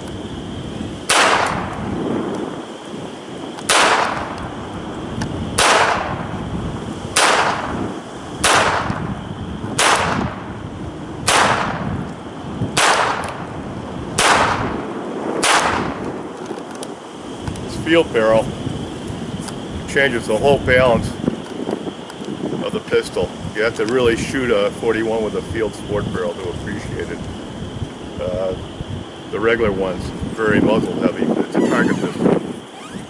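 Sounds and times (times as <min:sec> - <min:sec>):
wind on microphone: 0:00.0 - 0:33.0
pistol shots: 0:01.1 - 0:01.7, 0:03.7 - 0:04.4, 0:05.6 - 0:06.2, 0:07.2 - 0:07.8, 0:08.4 - 0:09.0, 0:09.8 - 0:10.4, 0:11.2 - 0:11.9, 0:12.8 - 0:13.4, 0:14.2 - 0:14.8, 0:15.4 - 0:16.0.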